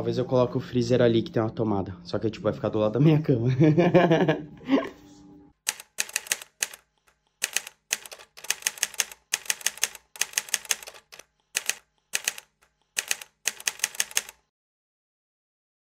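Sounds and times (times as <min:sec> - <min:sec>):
typewriter key strikes: 0:05.7 - 0:06.8, 0:07.4 - 0:14.3.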